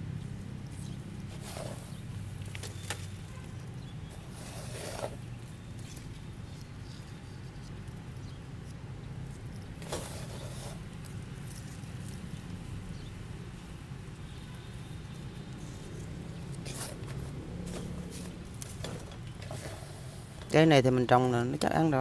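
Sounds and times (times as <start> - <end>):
soil rustling and crunching: 0.1 - 22.0
loud scrape: 1.3 - 2.0, 4.1 - 5.3, 9.8 - 10.8.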